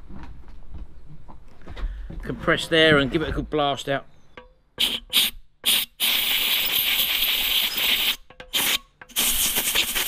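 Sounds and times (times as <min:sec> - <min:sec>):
air blow gun hissing: 0:04.8 - 0:10.0.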